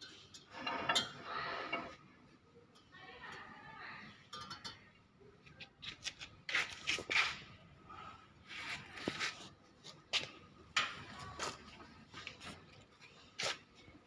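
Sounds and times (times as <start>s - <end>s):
metal scraping and clicking: 0.0s - 2.1s.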